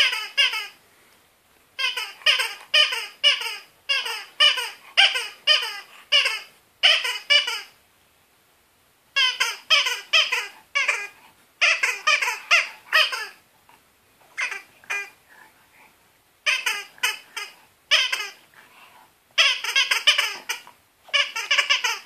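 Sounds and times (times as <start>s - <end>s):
squeaky toy squeaking: 0.0s - 0.8s, 1.8s - 7.8s, 9.1s - 13.4s, 14.3s - 15.2s, 16.4s - 18.5s, 19.3s - 22.0s.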